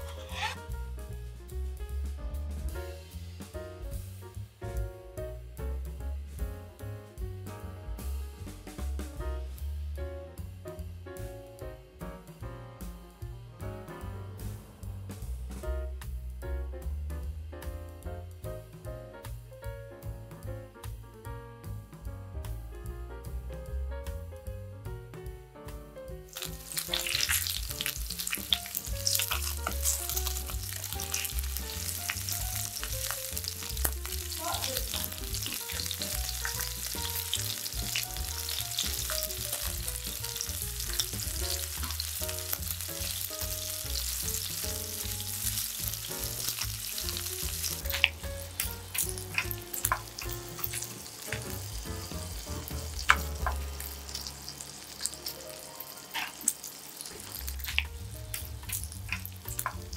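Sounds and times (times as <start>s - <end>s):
fish sizzling in oil: 0.0s - 0.8s, 26.3s - 59.9s
tongs tapping and scraping pan: 26.4s - 39.8s, 53.0s - 54.3s.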